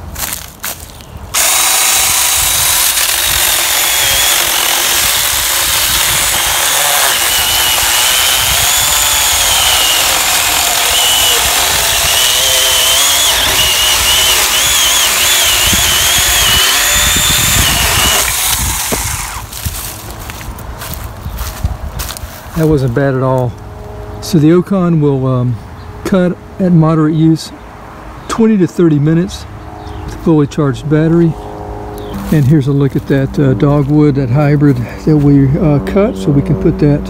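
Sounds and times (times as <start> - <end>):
mini chainsaw cutting wood: 1.3 - 20.0.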